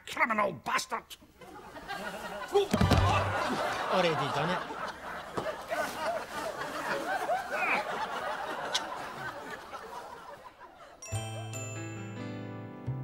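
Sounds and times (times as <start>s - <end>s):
studio audience laughing: 1.4s - 11.0s
soft music with chiming notes: 11.0s - 13.0s.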